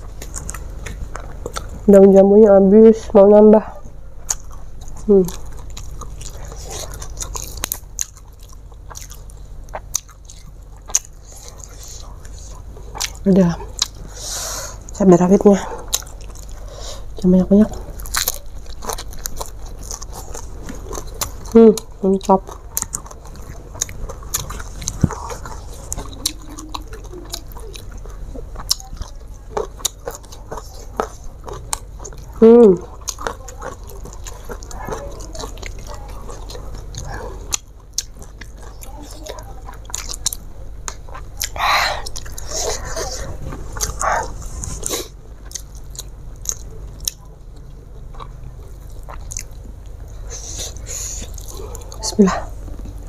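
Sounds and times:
person chewing with mouth smacks: 0:00.0 - 0:01.9, 0:03.8 - 0:53.0
breathy mouth sounds: 0:40.9 - 0:45.7.

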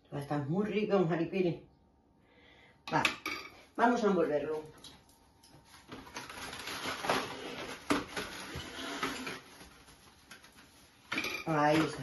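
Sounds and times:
cling film crinkling: 0:05.5 - 0:12.0.

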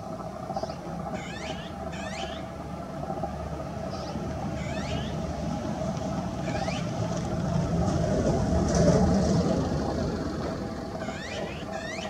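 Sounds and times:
steady low rumble: 0:00.0 - 0:12.0
magpie calling: 0:00.5 - 0:02.6, 0:03.8 - 0:05.4, 0:06.3 - 0:07.1, 0:11.0 - 0:12.0.

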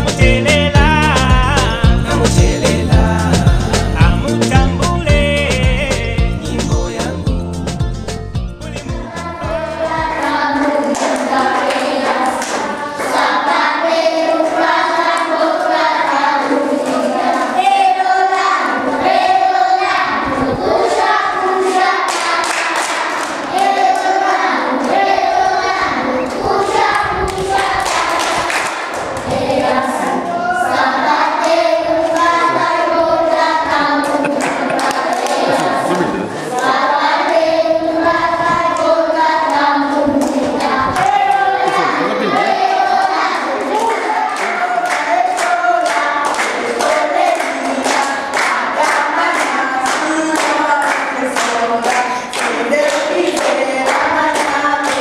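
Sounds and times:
children singing in chorus: 0:09.0 - 0:55.0
hand claps: 0:10.6 - 0:13.2, 0:21.7 - 0:24.1, 0:27.3 - 0:29.3, 0:34.0 - 0:36.7, 0:43.6 - 0:55.0.

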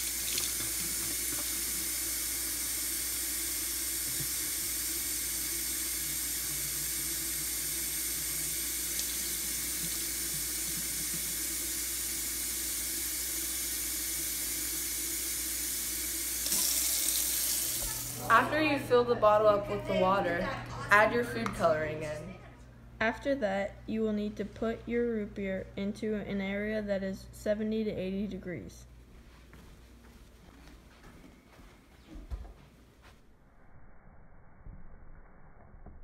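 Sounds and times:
water running into plastic bottle: 0:16.3 - 0:18.2.

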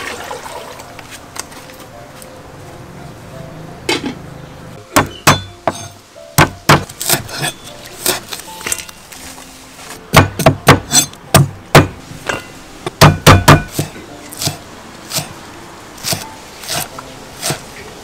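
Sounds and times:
cleaver chopping on wooden block: 0:04.9 - 0:08.2, 0:10.1 - 0:12.0, 0:12.9 - 0:15.3, 0:16.0 - 0:17.7.

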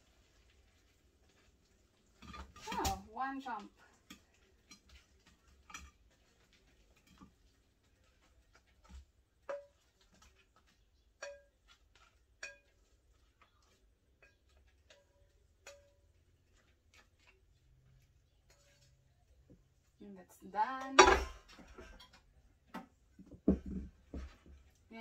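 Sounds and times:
metal spoon scraping frying pan: 0:03.6 - 0:19.2.

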